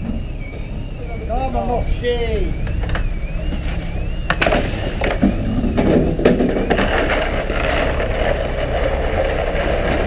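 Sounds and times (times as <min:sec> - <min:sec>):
high wavering tone: 0:00.0 - 0:05.6
boat engine rumbling: 0:00.0 - 0:10.0
knocks and clatter on deck: 0:04.3 - 0:07.4.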